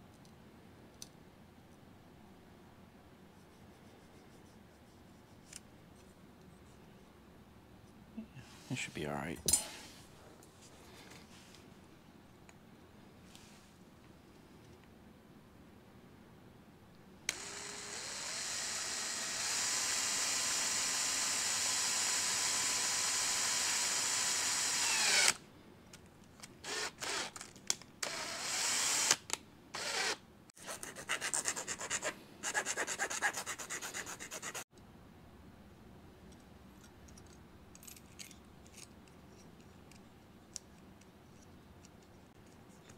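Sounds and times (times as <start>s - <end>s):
cordless drill boring plastic: 17.3s - 25.4s, 26.6s - 27.4s, 28.0s - 30.2s.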